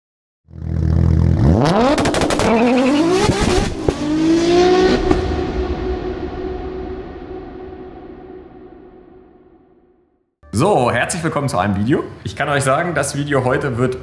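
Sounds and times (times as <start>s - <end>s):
engine idling and revving: 0.5s - 5.4s.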